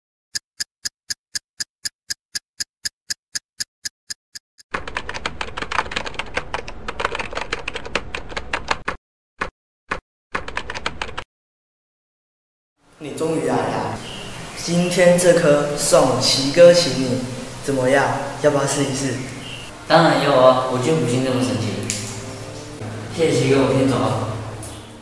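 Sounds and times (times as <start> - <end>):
typewriter typing: 0.6 - 9.0, 10.4 - 11.2.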